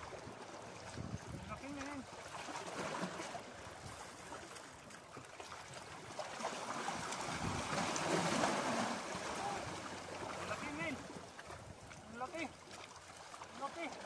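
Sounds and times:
sea water splashing over rocks: 0.0s - 14.0s
wind noise on microphone: 0.9s - 1.6s, 7.3s - 7.8s.

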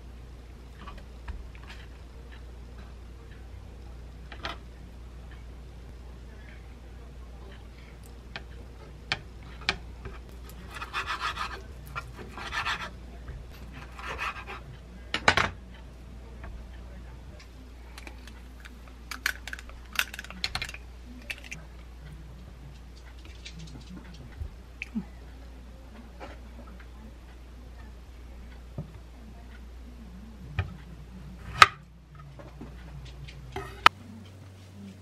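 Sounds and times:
scratchy rubbing on cutting board: 10.6s - 12.9s, 13.7s - 14.6s.

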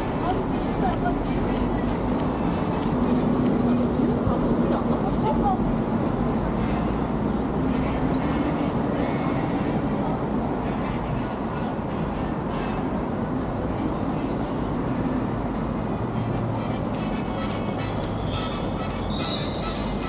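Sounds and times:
road traffic: 0.0s - 20.0s.

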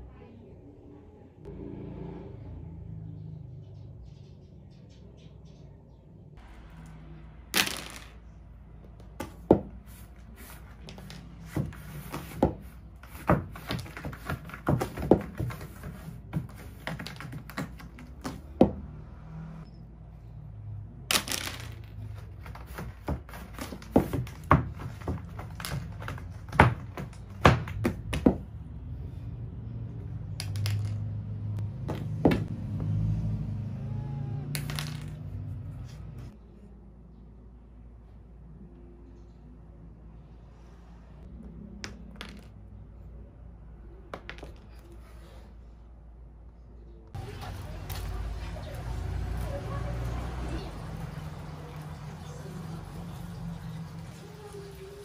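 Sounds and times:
plastic toys clattering on floor: 7.6s - 8.3s, 21.1s - 28.4s, 30.4s - 31.1s, 34.6s - 35.4s.

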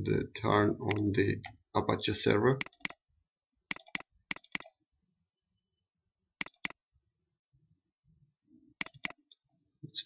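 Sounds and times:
computer mouse double-clicking: 2.6s - 3.0s, 3.7s - 4.7s, 6.4s - 6.8s, 8.8s - 9.2s.

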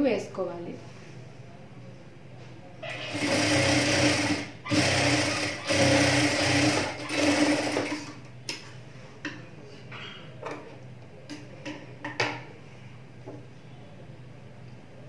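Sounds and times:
sewing machine stitching: 3.0s - 8.2s.

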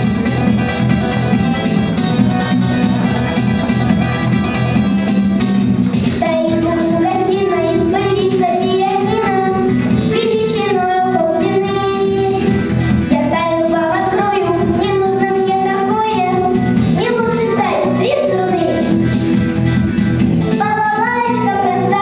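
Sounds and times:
music with a steady beat: 0.0s - 22.0s
girl singing into a microphone: 6.2s - 19.1s, 20.5s - 22.0s.

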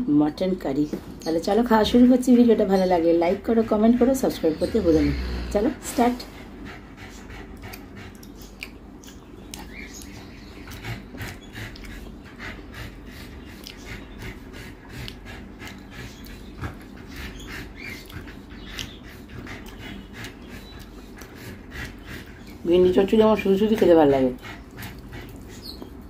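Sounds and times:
chewing with mouth clicks: 6.6s - 26.0s.

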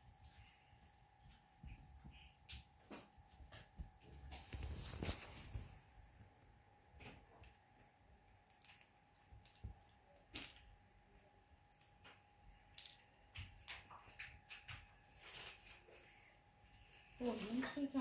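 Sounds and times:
faint steady hum: 0.0s - 18.0s
small clicks and taps: 8.4s - 14.9s.

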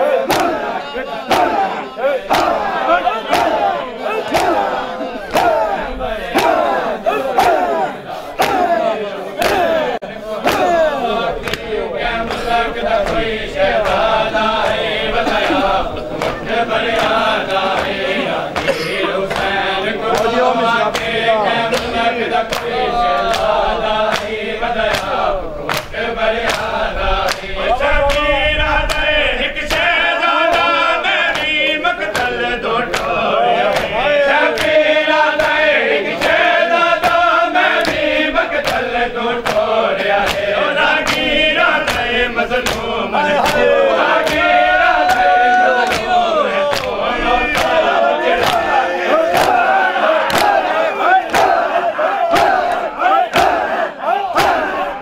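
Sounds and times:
men chanting in unison: 0.0s - 55.0s
hands slapping chests: 0.2s - 27.5s, 30.5s - 51.7s, 52.3s - 53.8s, 54.4s - 55.0s.

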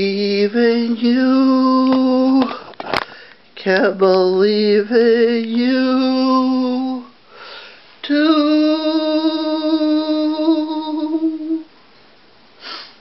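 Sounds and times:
man singing unaccompanied: 0.0s - 2.6s, 3.6s - 7.2s, 8.0s - 11.7s
man breathing: 2.5s - 3.5s, 7.2s - 8.0s, 12.6s - 13.0s.

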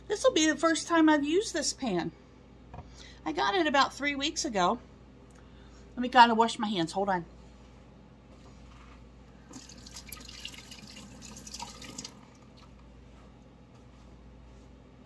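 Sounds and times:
tap water running: 9.4s - 12.7s.

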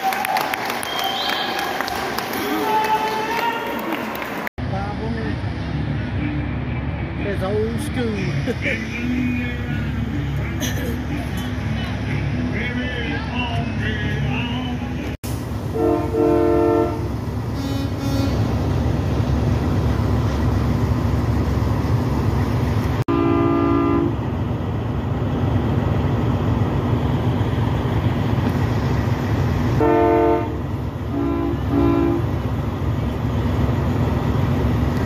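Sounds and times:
low engine rumble: 4.6s - 35.0s
truck air horn blasts: 15.7s - 18.5s, 23.1s - 24.2s, 29.8s - 32.3s.

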